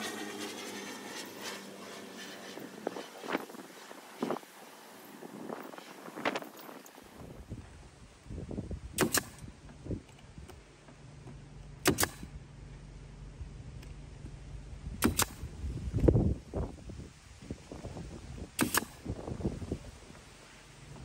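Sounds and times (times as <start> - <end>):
nail gun shots: 8.9 - 9.5, 11.8 - 12.3, 15.0 - 15.5, 18.6 - 19.1.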